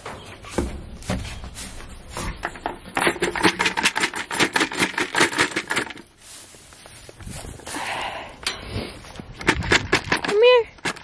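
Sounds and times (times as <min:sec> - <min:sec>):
footsteps rustling in hay: 0:00.2 - 0:02.4, 0:06.1 - 0:09.3
grain rattling in plastic bucket: 0:01.5 - 0:06.3, 0:09.3 - 0:11.0.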